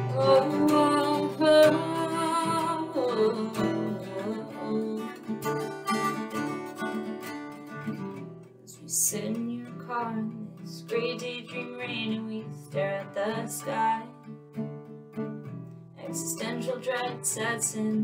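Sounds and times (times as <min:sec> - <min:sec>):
woman singing wordlessly: 0:00.0 - 0:06.0, 0:08.7 - 0:14.3, 0:16.0 - 0:18.0
acoustic guitar strumming: 0:00.0 - 0:18.0.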